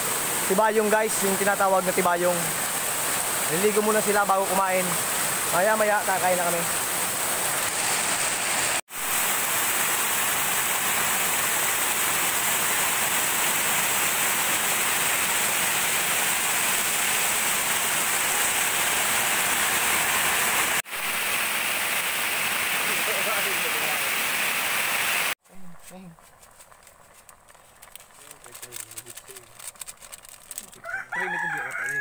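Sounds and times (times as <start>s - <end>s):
waterfall rushing: 0.0s - 25.4s.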